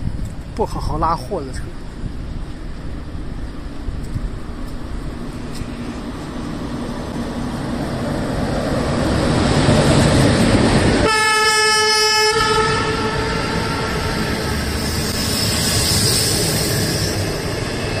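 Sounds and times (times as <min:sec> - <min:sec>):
electric train passing: 0:00.0 - 0:18.0
train horn blast: 0:11.0 - 0:14.3.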